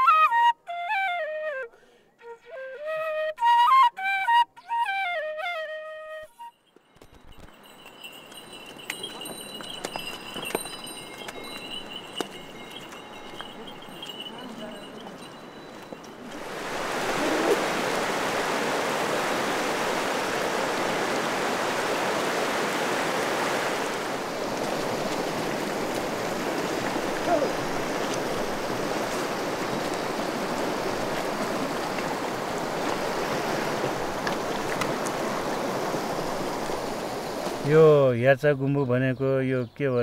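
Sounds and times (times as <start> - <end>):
water rushing in a stream: 7.4 - 37.7.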